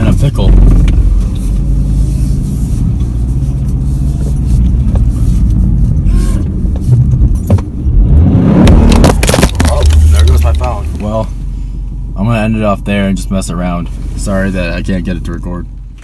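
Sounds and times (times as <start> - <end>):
car engine and tyres rumbling: 0.0 - 16.0
knocks and rattles in car: 6.5 - 7.9.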